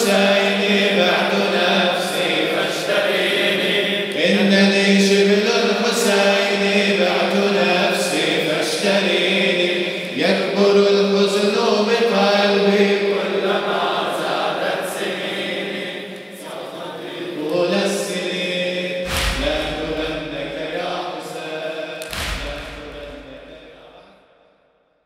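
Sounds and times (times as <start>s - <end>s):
men chanting in unison: 0.0s - 24.1s
chest-beating slaps: 19.0s - 20.4s, 22.0s - 23.6s.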